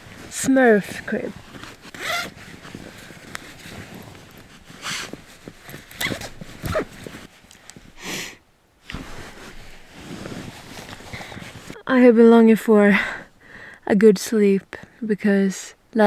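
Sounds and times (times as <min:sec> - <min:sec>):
sleeping bag rustling: 0:00.0 - 0:08.2, 0:08.8 - 0:11.8.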